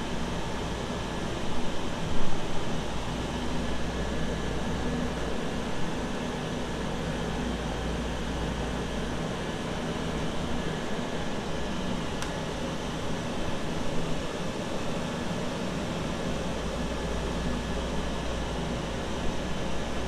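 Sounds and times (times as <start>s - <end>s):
train ventilation hum: 0.0s - 20.0s.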